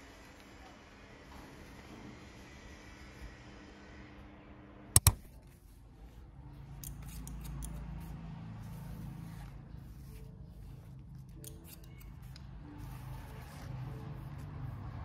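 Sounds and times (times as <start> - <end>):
sharp double click: 5.0 - 5.3
scissors snipping wet hair: 11.3 - 12.2.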